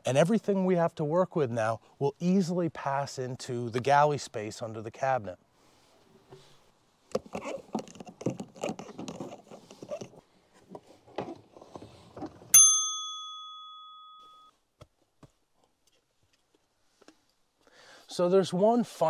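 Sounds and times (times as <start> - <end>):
bell-like ding: 12.5 - 14.5.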